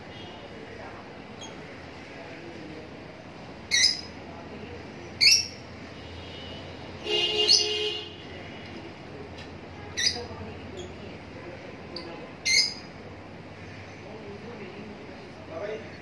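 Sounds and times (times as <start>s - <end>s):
lovebirds squawking: 3.7s - 4.2s, 7.4s - 7.8s, 9.9s - 11.0s, 12.4s - 14.1s.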